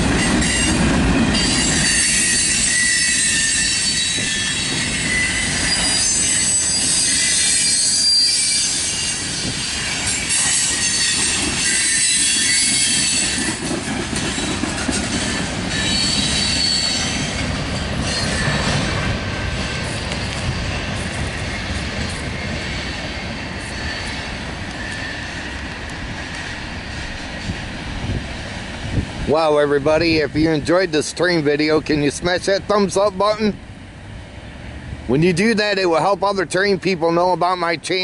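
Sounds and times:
train wheels squealing on rails: 0:00.0 - 0:29.0
train wheels clacking over track: 0:00.0 - 0:33.6.

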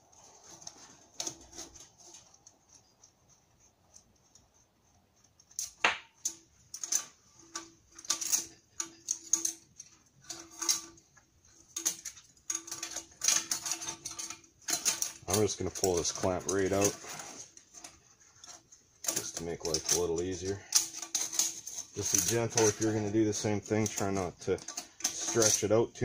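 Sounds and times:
metallic clicks and clinks: 0:05.2 - 0:26.0.

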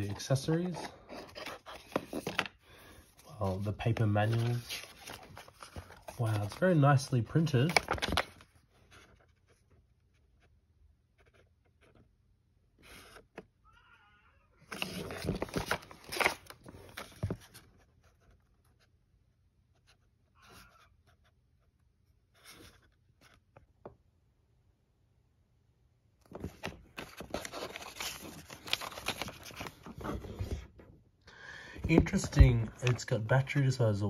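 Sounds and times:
paper rustling and crinkling: 0:00.0 - 0:09.7, 0:14.7 - 0:18.5, 0:26.3 - 0:30.8, 0:31.8 - 0:33.7.

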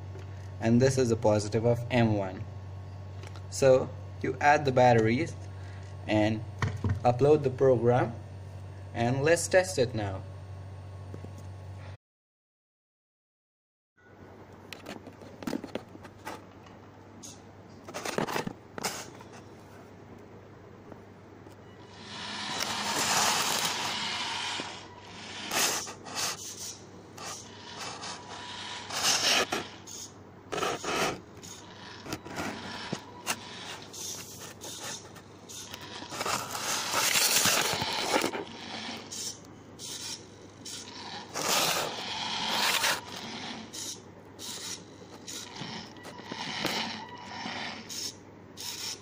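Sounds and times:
small robot motors whirring: 0:21.8 - 0:49.0
chassis scraping on tiled floor: 0:22.0 - 0:26.5, 0:31.9 - 0:39.1, 0:41.1 - 0:43.7.

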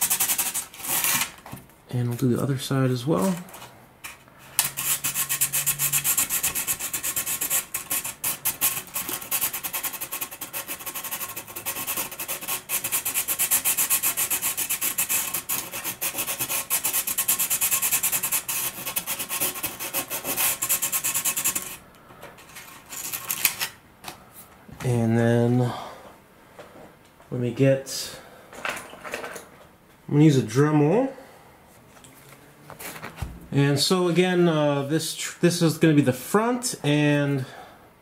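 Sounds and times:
sanding rubbing strokes: 0:00.0 - 0:01.1, 0:04.6 - 0:21.8.

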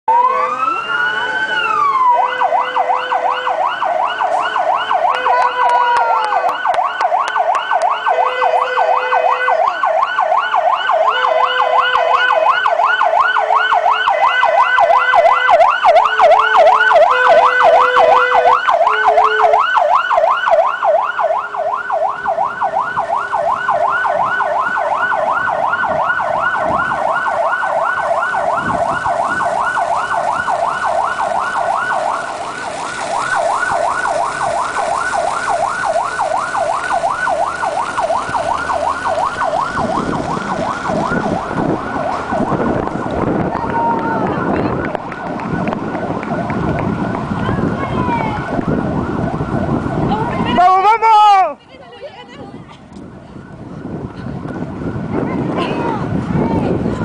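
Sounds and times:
fire engine siren: 0:00.0 - 0:51.8, 0:52.9 - 0:57.0
horn blasts: 0:04.2 - 0:06.6, 0:08.0 - 0:09.7, 0:11.0 - 0:12.5, 0:16.1 - 0:19.7.

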